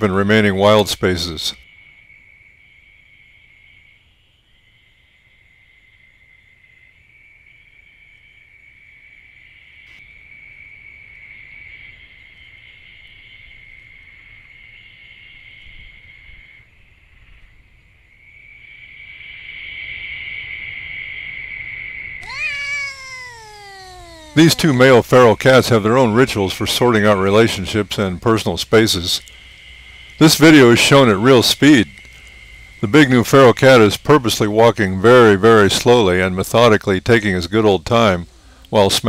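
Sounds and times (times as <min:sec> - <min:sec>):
insect trill: 0:22.2 - 0:25.0.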